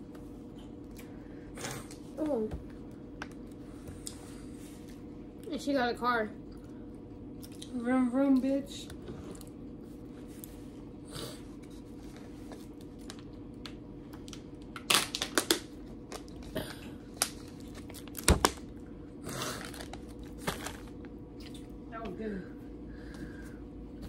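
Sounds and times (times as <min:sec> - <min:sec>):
steady low hum: 0:00.0 - 0:24.0
wrapper crinkling: 0:14.2 - 0:16.5, 0:17.1 - 0:18.7, 0:19.6 - 0:21.1.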